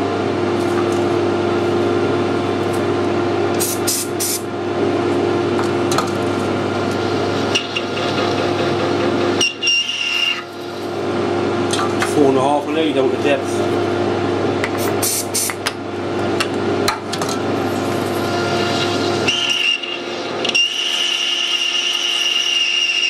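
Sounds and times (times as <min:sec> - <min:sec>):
lathe gear hum: 0:05.5 - 0:14.3.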